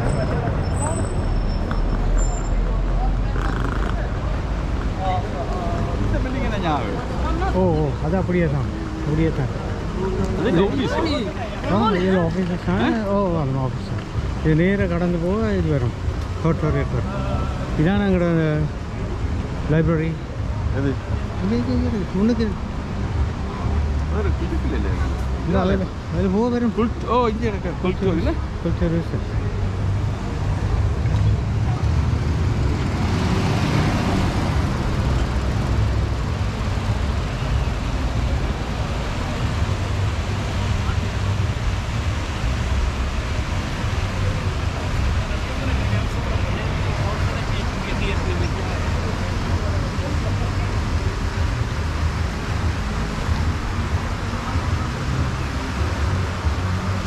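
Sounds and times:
low traffic rumble: 0.0 - 57.0
vehicle passing by: 29.7 - 51.0.

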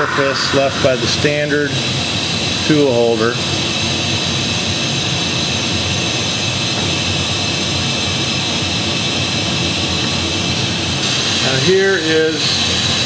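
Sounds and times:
loud steady hiss: 0.0 - 1.9
faint hum: 0.0 - 2.2.

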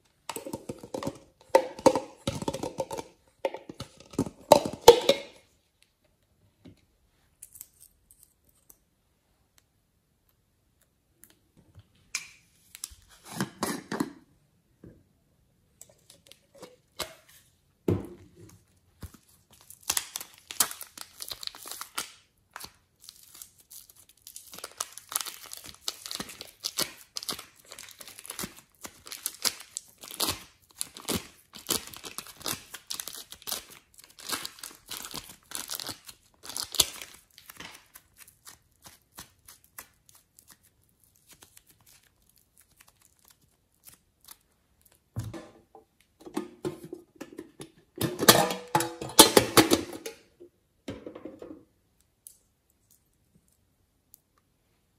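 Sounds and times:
slime crackling squishes: 19.0 - 45.1.

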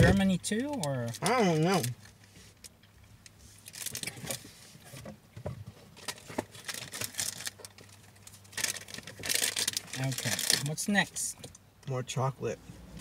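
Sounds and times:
plastic wrappers crinkling: 0.8 - 2.1, 3.6 - 4.4, 6.0 - 10.8.

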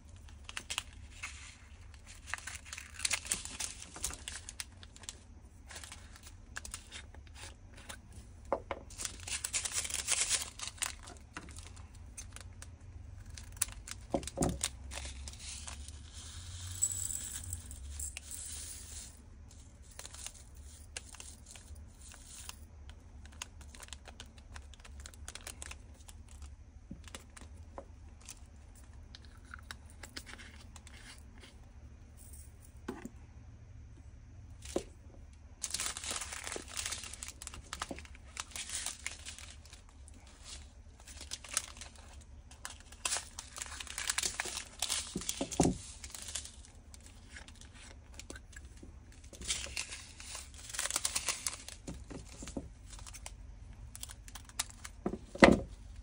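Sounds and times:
plastic zip bags crinkling: 0.2 - 8.0, 8.9 - 16.0, 23.2 - 27.5, 35.6 - 55.4.

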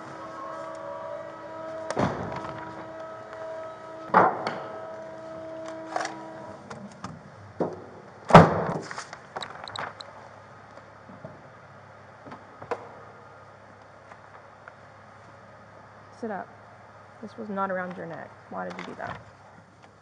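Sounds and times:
car trunk lid slamming: 1.8 - 2.8.

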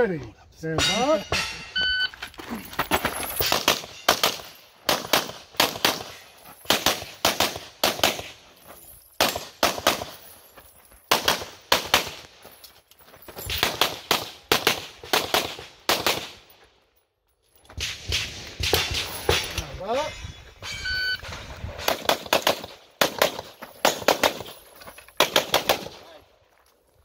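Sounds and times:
rapid pistol shots: 3.5 - 8.4, 13.6 - 16.4, 21.8 - 24.5, 25.2 - 26.0.

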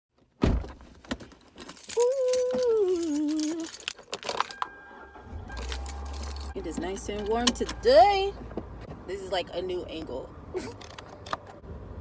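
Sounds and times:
keys jangling: 1.6 - 4.6, 5.5 - 6.6.

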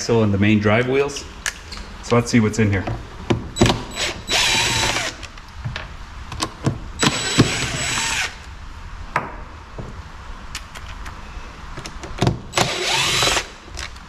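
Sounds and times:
cordless drill whining: 3.9 - 5.2, 7.0 - 8.4, 12.6 - 13.6.

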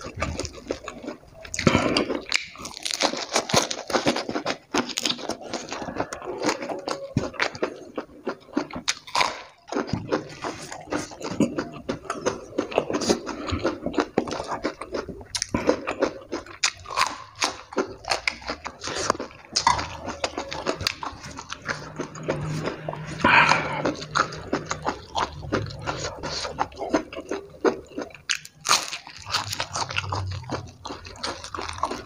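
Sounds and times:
chewing and crunching food: 0.0 - 32.0
wet mouth clicks and lip smacks: 1.4 - 3.6.

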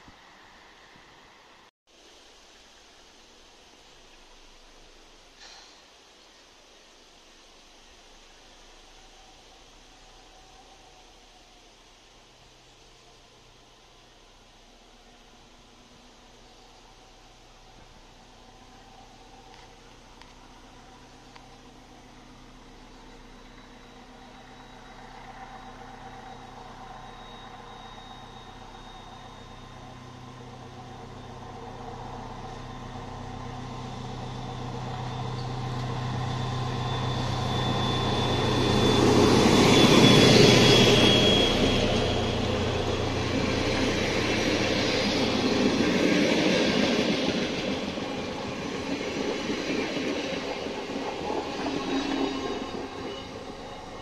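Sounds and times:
diesel train engine drone: 6.9 - 54.0
rolling train cars: 8.3 - 54.0
high wheel squeal: 18.2 - 54.0.

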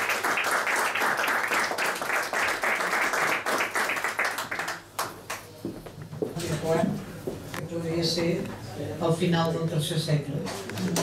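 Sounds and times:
small audience clapping: 0.0 - 5.9.

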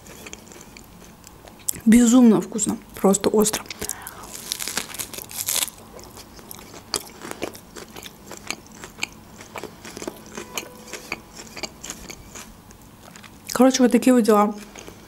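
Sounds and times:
wet chewing: 3.5 - 13.6
crisp bite into lettuce: 3.8 - 6.7.

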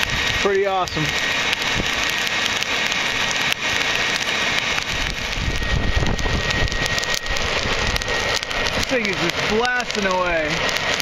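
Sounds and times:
charcoal crackling and popping: 0.0 - 11.0
hair dryer blowing: 0.0 - 11.0
low rumbling: 0.0 - 11.0.

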